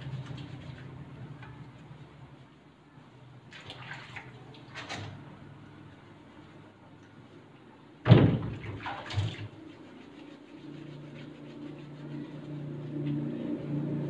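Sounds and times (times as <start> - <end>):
low steady hum: 0.0 - 14.0
water splashing: 3.5 - 5.2, 8.1 - 11.5.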